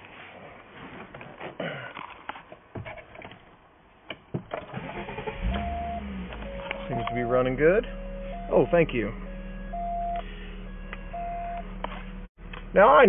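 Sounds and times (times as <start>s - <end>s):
car engine starting and idling: 4.5s - 13.0s.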